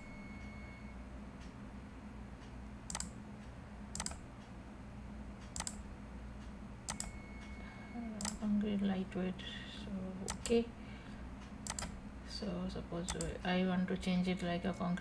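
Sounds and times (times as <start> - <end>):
low steady hum: 0.0 - 15.0
computer clicks: 2.9 - 3.2, 3.9 - 4.2, 5.4 - 5.8, 6.9 - 7.6, 8.2 - 8.5, 10.2 - 10.6, 11.4 - 12.0, 13.1 - 13.4.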